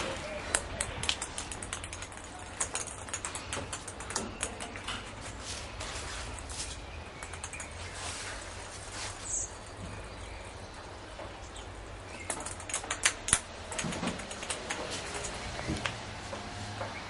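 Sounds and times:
ball and paws tapping on tiles: 0.5s - 5.4s, 7.2s - 7.9s, 12.2s - 17.0s.

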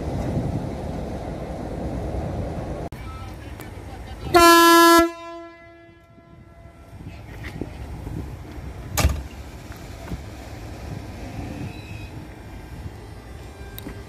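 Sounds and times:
locomotive horn blast: 4.3s - 7.1s.

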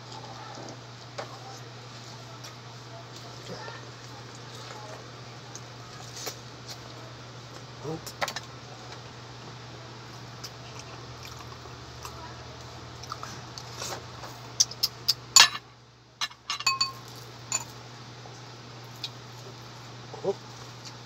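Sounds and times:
steady low hum: 0.0s - 21.0s
eggs cracked and peeled: 14.6s - 15.3s
tableware clinking: 15.4s - 15.6s, 16.2s - 17.8s.

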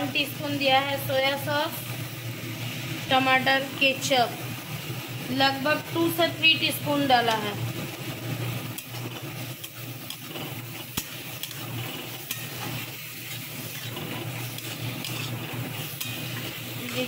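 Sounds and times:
frying sizzle: 0.0s - 17.0s
spatula scraping pan: 8.8s - 17.0s.

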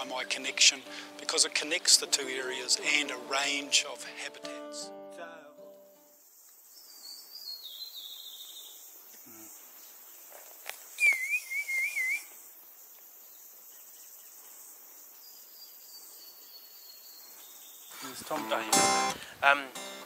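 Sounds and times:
forest birdsong: 0.0s - 4.7s, 5.4s - 19.1s
insect drone: 6.0s - 17.8s
thin high bird whistles: 10.9s - 12.4s
loud wavering whistled bird call: 11.0s - 12.4s.

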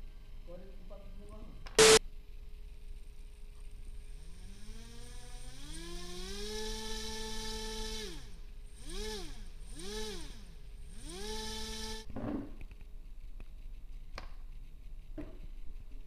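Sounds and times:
electric motor whine: 1.8s - 2.0s, 4.2s - 12.0s.

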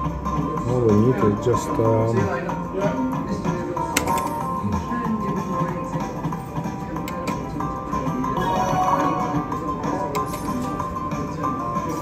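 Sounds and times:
slot machine game music: 3.6s - 12.0s.

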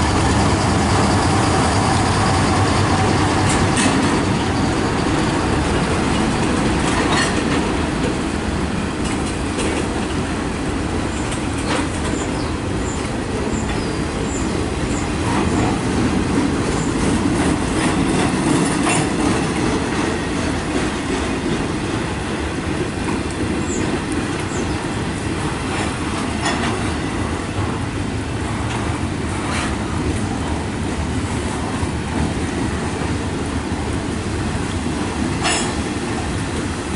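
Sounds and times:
faint high wheel squeals: 0.0s - 5.9s
steel wheels rumbling on rail: 0.0s - 36.9s
clacks at rail joints: 0.1s - 8.3s, 8.9s - 10.5s, 11.1s - 33.2s, 34.1s - 36.8s.

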